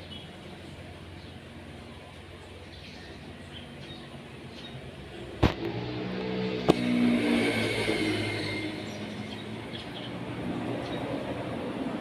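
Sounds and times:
sparrows chirping: 0.0 - 5.4, 7.1 - 12.0
vehicle engine passing by: 5.1 - 12.0.

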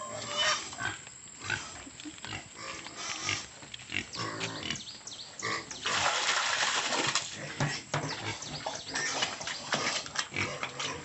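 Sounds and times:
pig grunting: 7.3 - 11.0.

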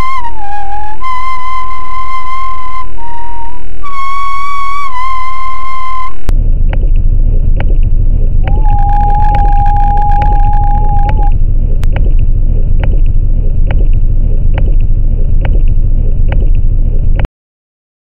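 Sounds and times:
high held tone: 0.0 - 6.4, 8.4 - 11.6
dense low rumble: 0.0 - 17.3
sharp clicks: 6.6 - 17.3.

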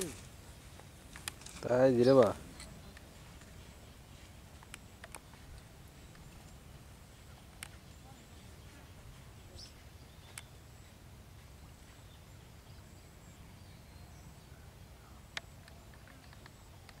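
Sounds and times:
faint bird chirp: 1.6 - 17.0
sharp clicks: 4.6 - 6.6, 15.3 - 17.0.

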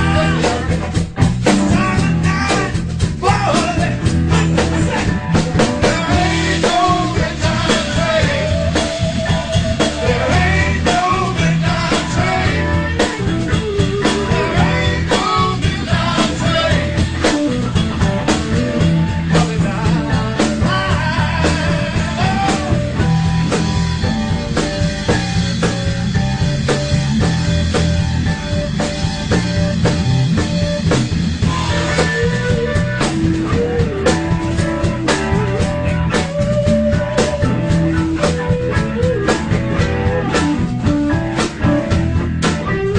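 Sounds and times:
lead vocal: 0.0 - 1.0, 1.7 - 17.8, 19.1 - 23.6
drum kit beat: 0.0 - 42.9
guitar: 0.0 - 42.9.

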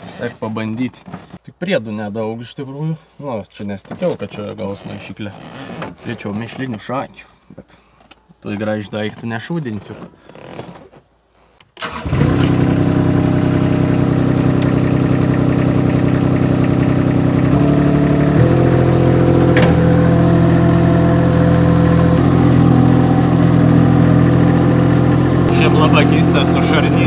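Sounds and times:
loader engine starting and running: 11.8 - 27.0.

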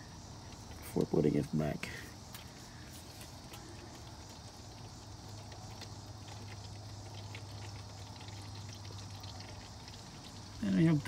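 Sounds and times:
spatter ticks: 0.0 - 11.0
oil pattering into pan: 2.2 - 11.0.

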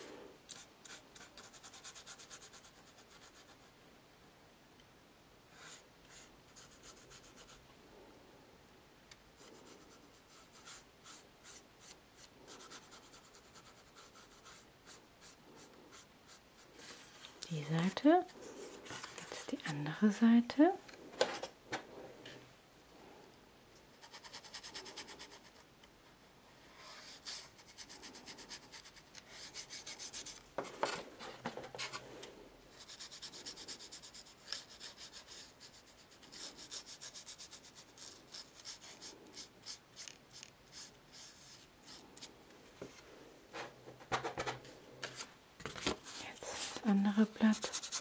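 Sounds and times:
paintbrush scratching on card: 9.4 - 17.1, 24.0 - 25.6, 26.9 - 30.9, 32.7 - 42.1, 46.5 - 48.0.

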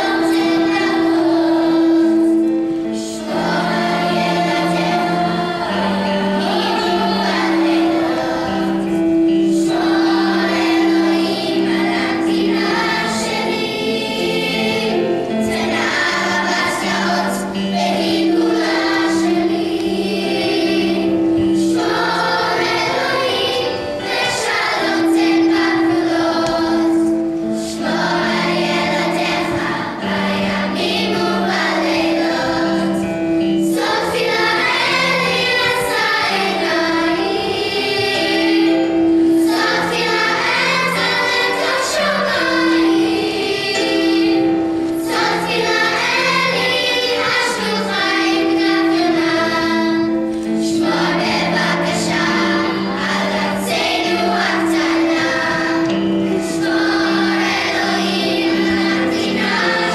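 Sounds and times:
children's choir singing: 0.0 - 59.9.

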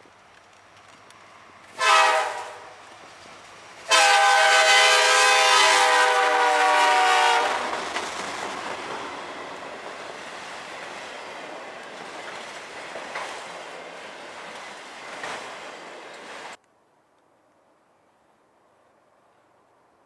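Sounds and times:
train cars rumbling and clattering: 0.2 - 16.6
locomotive air horn blasts: 1.8 - 2.7, 3.9 - 7.7.

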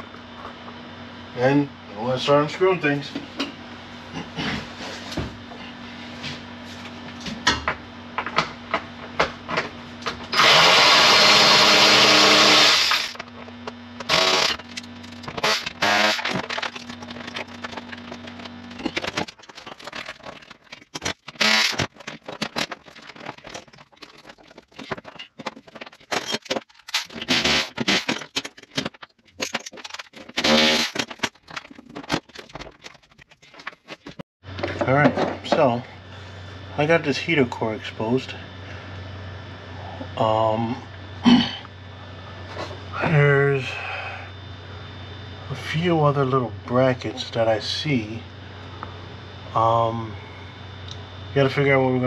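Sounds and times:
faint steady hum: 0.0 - 52.0
power tool whirring: 10.3 - 13.2, 14.0 - 16.8, 21.3 - 21.9, 26.9 - 28.1, 30.3 - 31.1
tools and parts clattering: 12.9 - 35.6.

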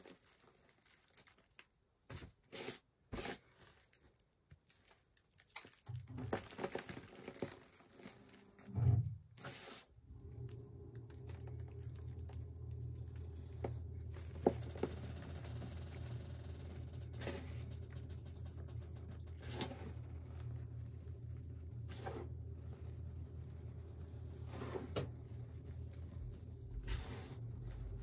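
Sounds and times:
steady low hum: 8.7 - 28.0.

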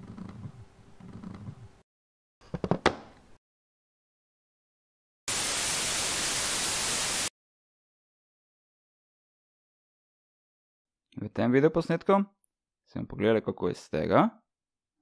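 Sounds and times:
loud static hiss: 5.3 - 7.3.

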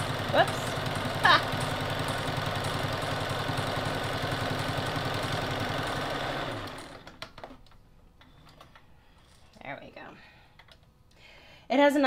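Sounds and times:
sewing machine stitching: 0.0 - 7.5.

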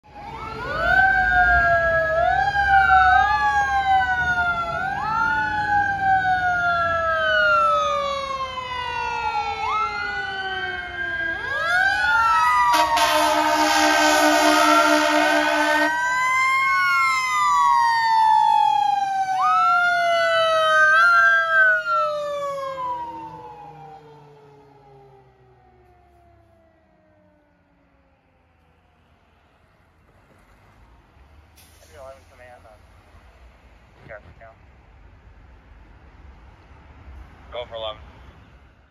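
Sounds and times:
fire engine siren wailing: 0.0 - 29.8
horn blast: 12.7 - 15.9.

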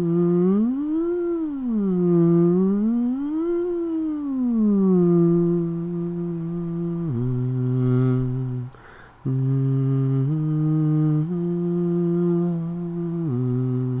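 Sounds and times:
person humming: 0.0 - 14.0
quick breath in: 8.7 - 9.2.

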